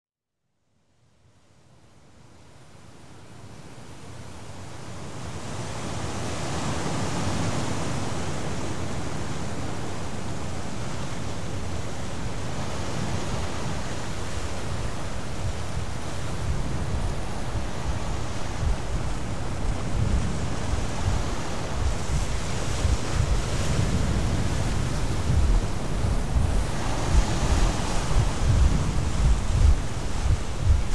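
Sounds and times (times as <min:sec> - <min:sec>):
wind blowing: 0:08.4 - 0:30.9
wind buffeting microphone: 0:11.6 - 0:30.9.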